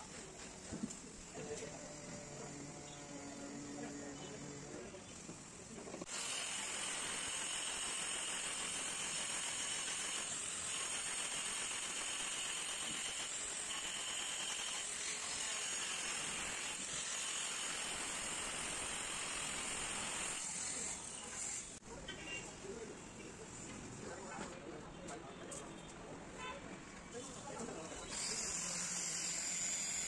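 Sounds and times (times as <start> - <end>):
electric tile cutter cutting tile: 6.1 - 21.5, 28.1 - 30.0.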